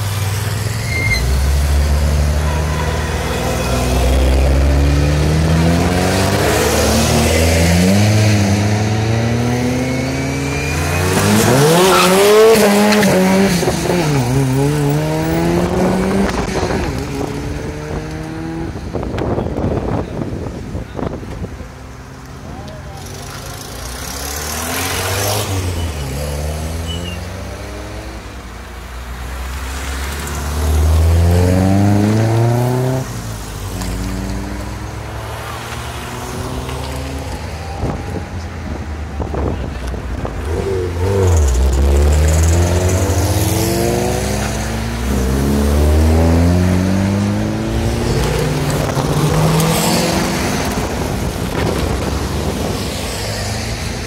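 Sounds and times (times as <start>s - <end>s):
cars driving past accelerating: 23.6s - 54.0s.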